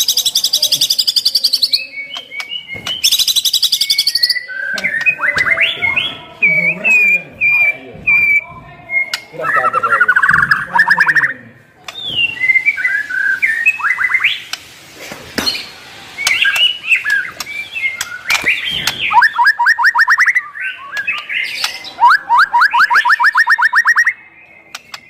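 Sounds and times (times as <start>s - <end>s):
songbird whistling song: 0.0s - 14.6s, 15.4s - 25.0s
rapid rising bird notes: 15.6s - 25.0s.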